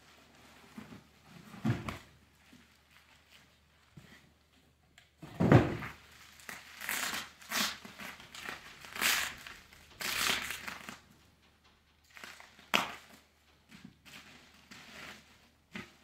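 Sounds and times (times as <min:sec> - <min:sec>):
bubble wrap crinkling: 0:06.0 - 0:11.1.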